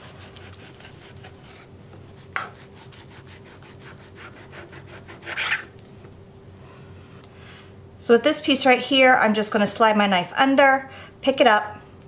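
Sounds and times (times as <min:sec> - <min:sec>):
knife rasping through meat: 0:00.0 - 0:05.7.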